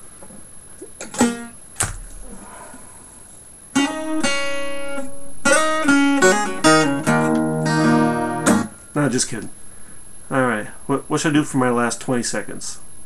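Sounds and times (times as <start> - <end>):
acoustic guitar strumming: 1.0 - 1.6, 3.7 - 9.0.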